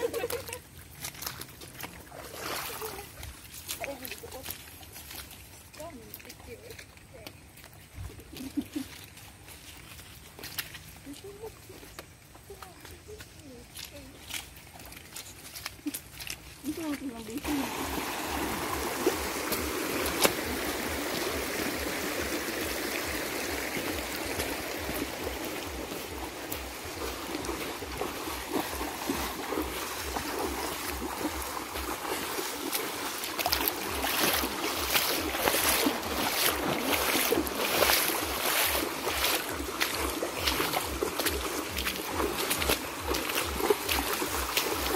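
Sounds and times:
river running over stones: 0:00.0 - 0:08.1, 0:13.4 - 0:44.9
feet splashing through water: 0:00.0 - 0:44.9.

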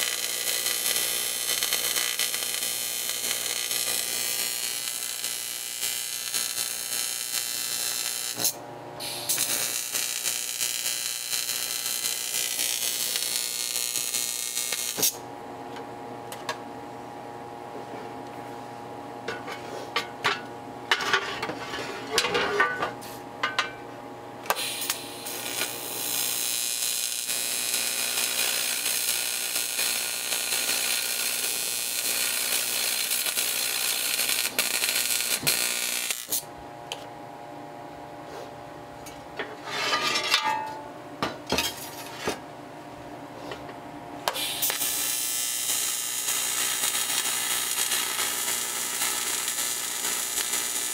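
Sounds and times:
welding arc hissing: 0:00.0 - 0:15.2, 0:24.5 - 0:36.5, 0:44.3 - 0:50.9.

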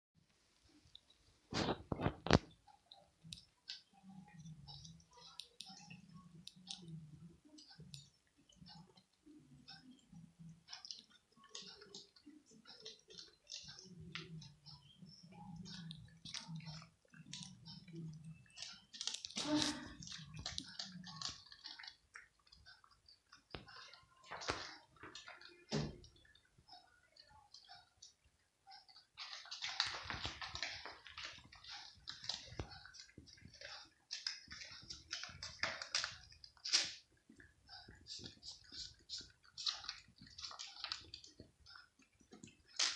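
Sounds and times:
cats crunching kibble: 0:15.3 - 0:26.4, 0:28.9 - 0:42.9.

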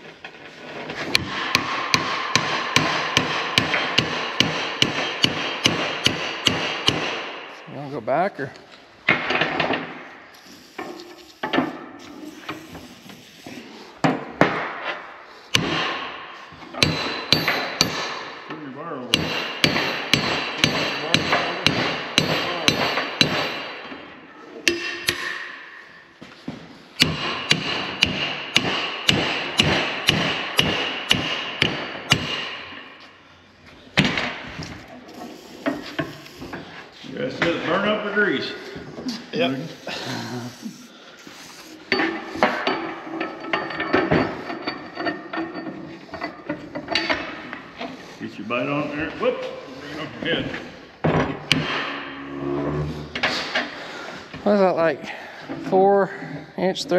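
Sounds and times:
hammer ringing on steel: 0:16.8 - 0:18.4, 0:19.1 - 0:23.7.

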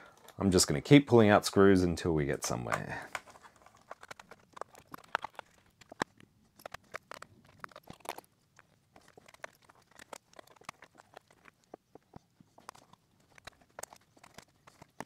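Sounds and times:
small screws and plastic parts clicking: 0:02.4 - 0:15.0.

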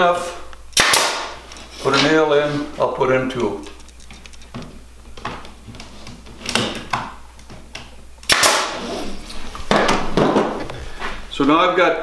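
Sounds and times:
nail gun firing: 0:00.8 - 0:01.4, 0:08.2 - 0:08.9.

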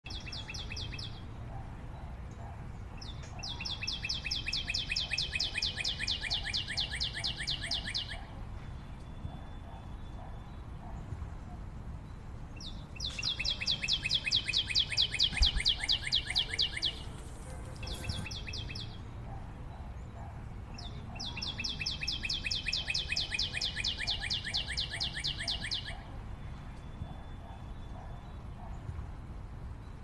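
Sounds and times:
bird trilling: 0:03.4 - 0:08.3, 0:12.6 - 0:19.0, 0:20.8 - 0:26.1.

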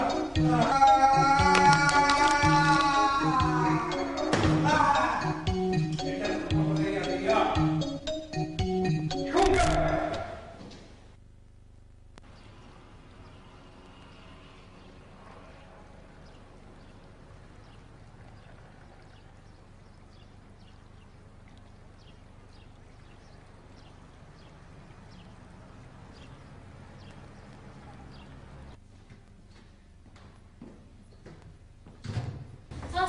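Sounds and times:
low steady hum: 0:10.2 - 0:30.5
footsteps walking: 0:10.5 - 0:11.3, 0:28.8 - 0:32.1.

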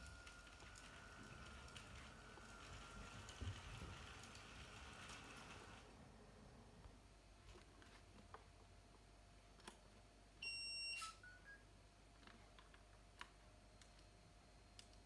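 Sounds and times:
faint steady hum: 0:00.0 - 0:15.0
electronic beep: 0:10.4 - 0:11.7.

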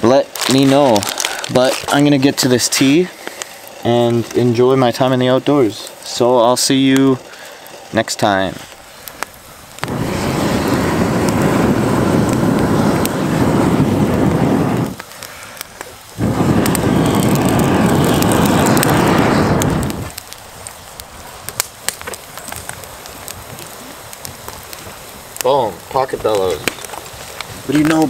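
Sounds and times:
fire crackling and popping: 0:00.0 - 0:28.0
bellows air rushing: 0:08.5 - 0:20.2.

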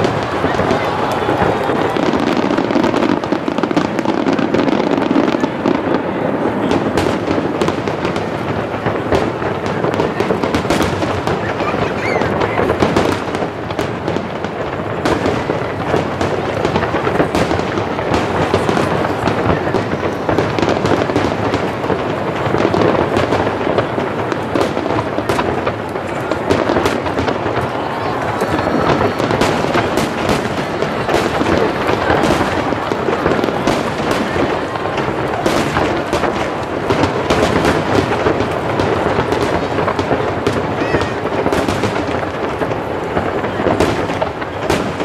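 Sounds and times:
firework shells bursting: 0:14.7 - 0:45.0.

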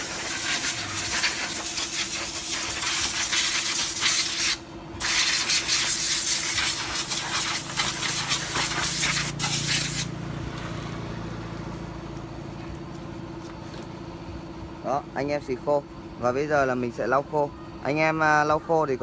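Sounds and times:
compressed air blow gun hissing: 0:00.0 - 0:10.1
steady low hum: 0:00.0 - 0:19.0.

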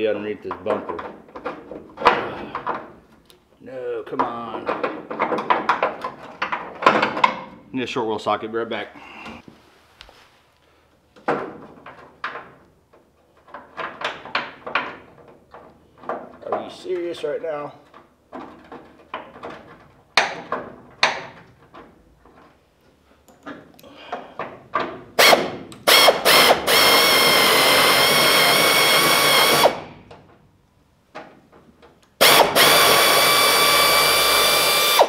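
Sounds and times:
air ratchet whining: 0:25.2 - 0:30.0, 0:32.2 - 0:35.0.

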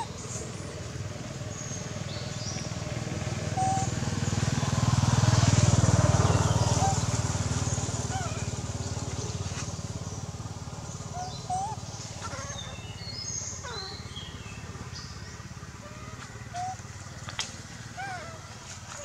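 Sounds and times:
vehicle engine low rumble: 0:00.0 - 0:19.0
short chirping calls: 0:10.8 - 0:19.0.

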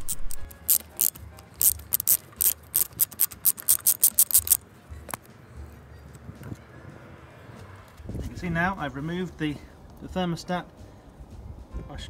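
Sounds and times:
ratchet wrench clicking: 0:00.0 - 0:05.2.

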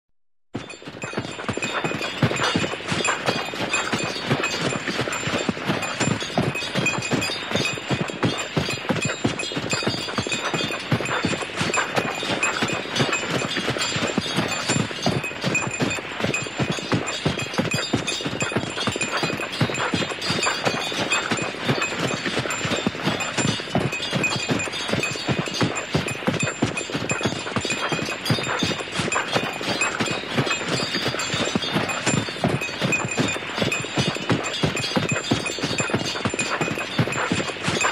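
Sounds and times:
horse hooves clopping: 0:00.6 - 0:37.9.

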